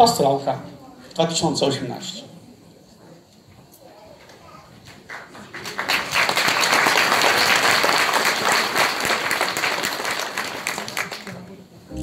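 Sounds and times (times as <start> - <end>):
audience applauding: 4.9 - 11.6.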